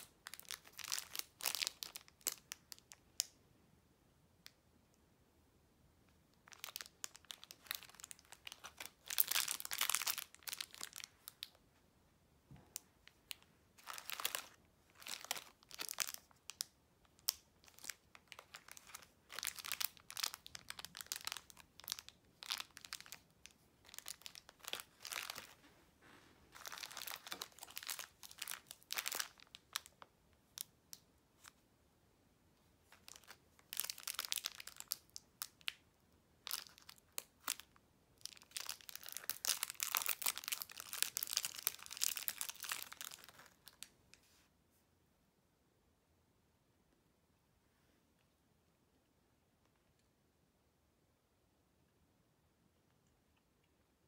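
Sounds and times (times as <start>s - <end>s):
plastic wrappers crinkling: 0.0s - 3.0s, 6.4s - 11.6s, 13.0s - 31.6s, 32.9s - 35.8s, 36.4s - 43.9s.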